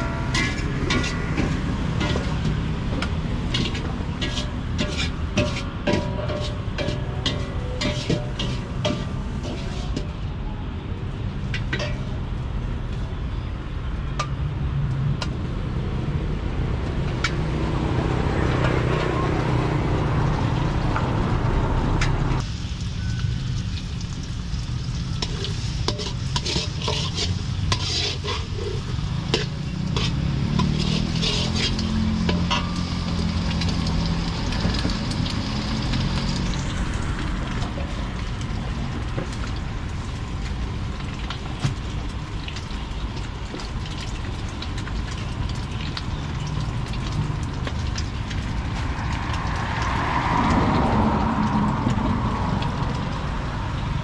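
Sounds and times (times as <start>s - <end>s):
food sizzling in a pan: 0.0s - 10.2s, 22.4s - 50.3s
utensils stirring and clinking: 0.0s - 10.2s, 25.2s - 33.9s.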